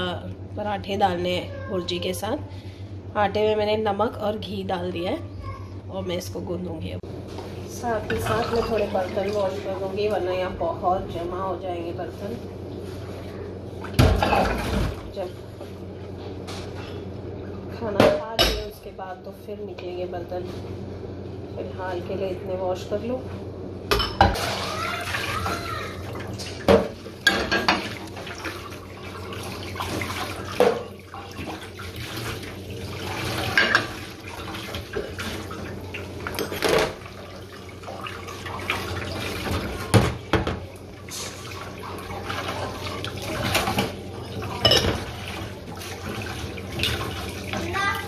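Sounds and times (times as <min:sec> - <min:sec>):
ceramic bowls and spoon clinking: 0:44.6 - 0:45.0.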